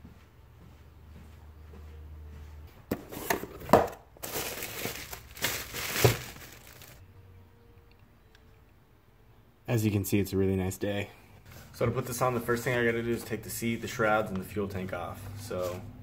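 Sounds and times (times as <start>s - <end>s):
bubble wrap and cardboard rustling: 3.2s - 7.0s.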